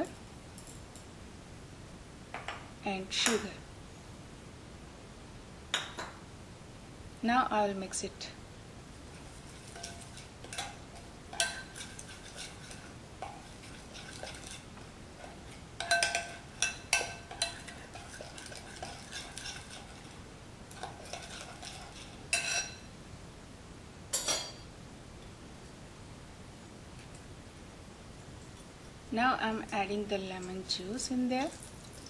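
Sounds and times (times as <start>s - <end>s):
metal spoon stirring paste: 9.1s - 22.7s
spoon clinking on glass bowl: 9.7s - 12.5s, 15.8s - 19.8s, 20.8s - 22.8s.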